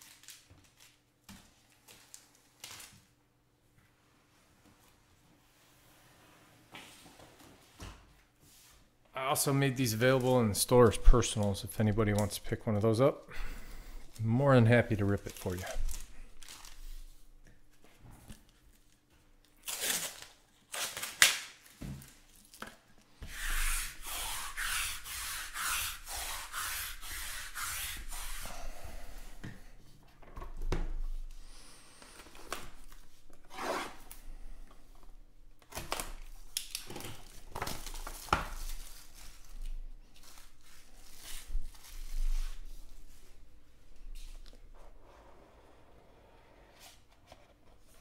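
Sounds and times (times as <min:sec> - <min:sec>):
plastic wrap tearing and crinkling: 0:00.0 - 0:03.2, 0:14.1 - 0:17.2, 0:18.5 - 0:22.9, 0:35.6 - 0:43.1.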